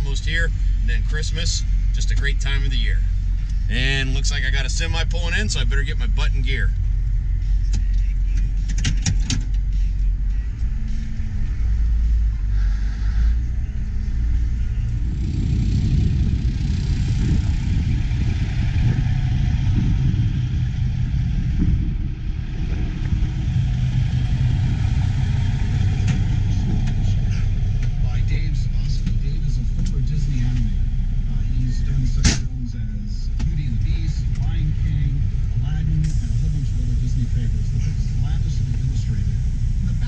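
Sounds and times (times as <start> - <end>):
tractor diesel engine drone: 0.0 - 40.0
truck diesel engine rumble: 0.0 - 40.0.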